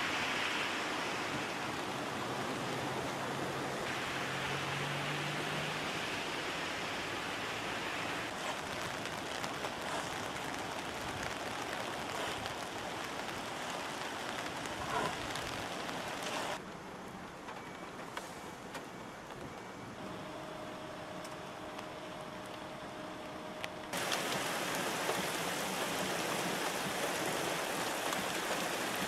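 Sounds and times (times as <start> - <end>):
floodwater rushing: 0.0 - 16.6, 23.8 - 29.0.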